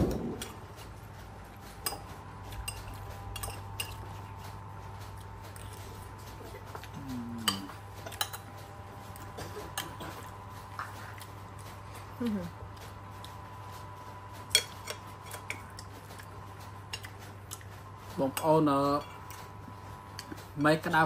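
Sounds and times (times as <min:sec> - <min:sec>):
steady low hum: 0:00.0 - 0:21.0
utensils clinking on dishes: 0:01.6 - 0:04.6, 0:06.8 - 0:08.6, 0:14.4 - 0:16.3.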